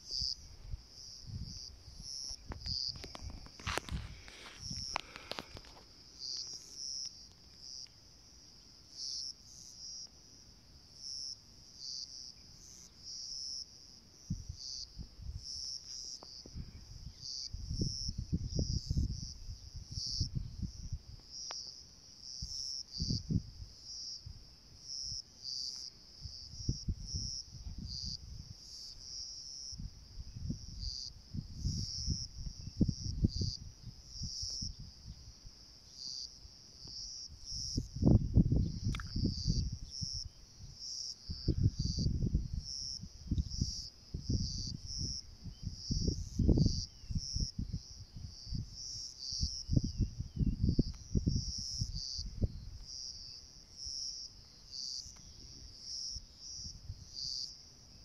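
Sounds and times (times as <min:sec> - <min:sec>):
insects chirping: 0:00.0 - 0:58.0.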